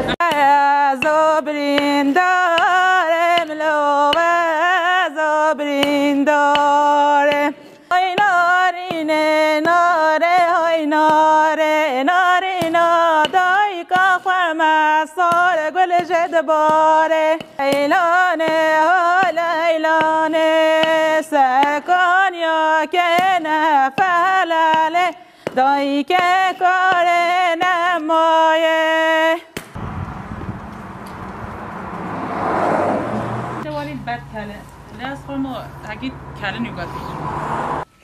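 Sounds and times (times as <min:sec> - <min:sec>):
person singing unaccompanied: 0:00.0 - 0:29.6.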